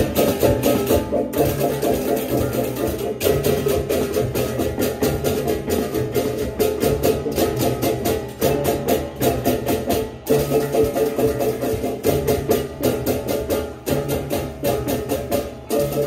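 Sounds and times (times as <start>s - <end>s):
hand cymbals clashing: 0.0s - 16.0s.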